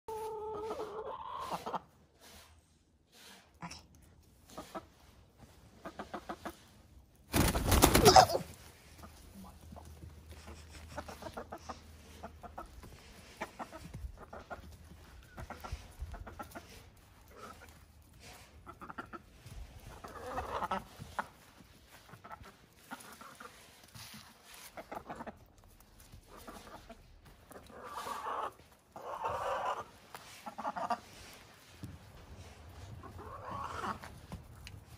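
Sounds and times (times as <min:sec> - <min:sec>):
hens clucking: 0:00.1 - 0:02.2, 0:04.2 - 0:34.9.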